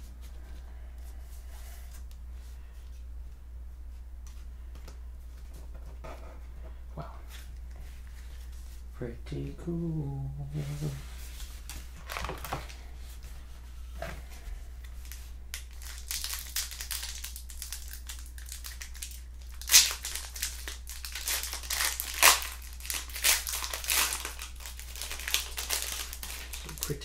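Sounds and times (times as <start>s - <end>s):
wrapper crinkling: 11.6s - 12.8s, 14.8s - 27.0s.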